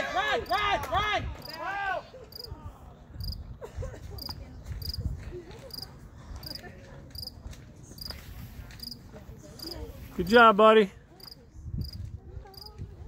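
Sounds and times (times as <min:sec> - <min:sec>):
cricket chirping: 0:11.2 - 0:12.7.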